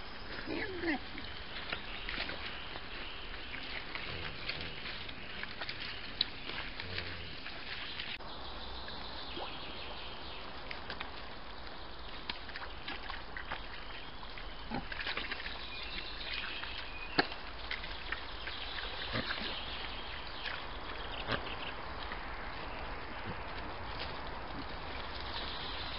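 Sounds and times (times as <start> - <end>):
mud squelching: 0.0 - 8.2, 10.6 - 25.9.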